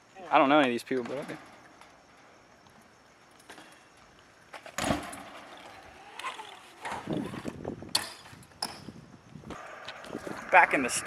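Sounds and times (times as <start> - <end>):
tyres rolling and rattling: 0.6 - 8.8, 9.5 - 11.0
bike landing on ramp: 4.6 - 8.9.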